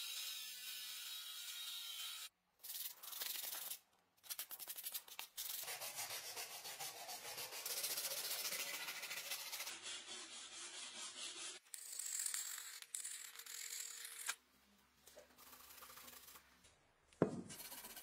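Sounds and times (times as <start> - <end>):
sandpaper rasping on wood: 5.4 - 11.6, 17.5 - 18.0.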